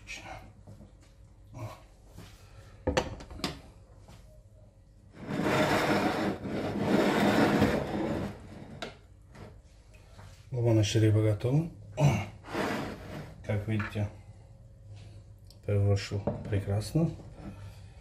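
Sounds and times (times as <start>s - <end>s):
plate scraping across countertop: 5.1s - 8.9s, 12.4s - 13.4s.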